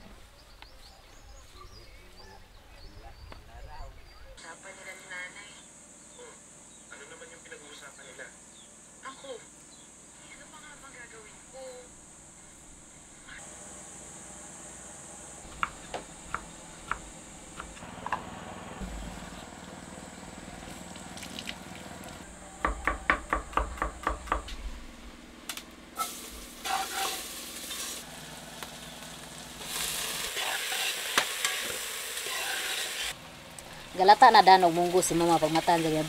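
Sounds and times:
food sizzling: 25.9 - 36.0.

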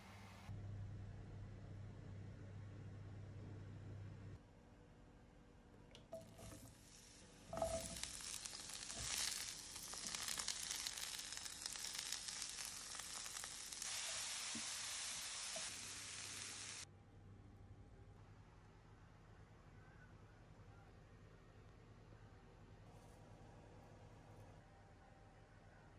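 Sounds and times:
vegetables sizzling in a frying pan: 6.1 - 16.8.

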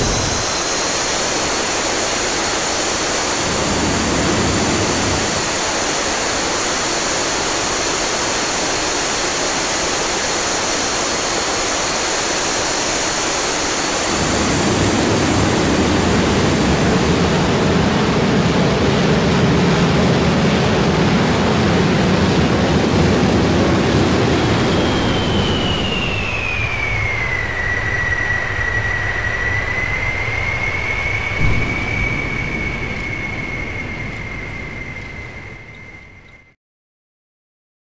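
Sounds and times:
jet turbine engine running: 0.0 - 36.4
deep rumble: 14.1 - 36.5.

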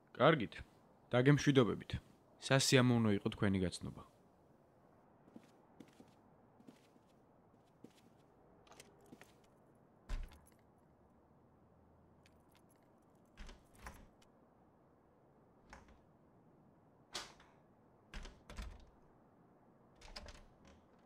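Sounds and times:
keys rattling in door lock: 12.3 - 14.2.

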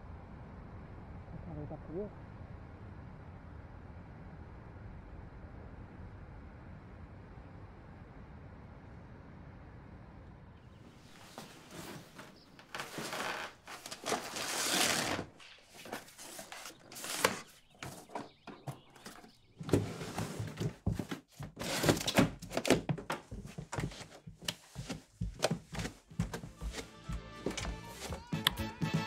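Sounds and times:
record sleeves scraping: 11.1 - 22.8, 23.4 - 28.5.

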